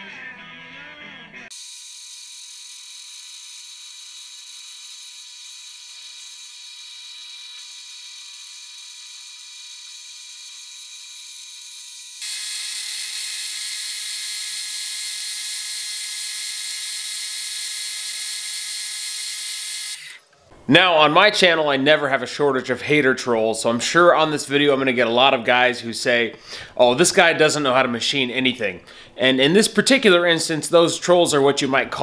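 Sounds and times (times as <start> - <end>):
lathe motor whine: 1.6 - 20.2.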